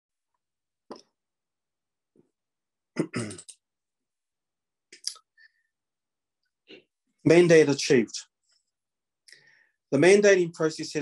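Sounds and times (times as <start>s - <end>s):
man clearing his throat: 2.9s - 3.5s.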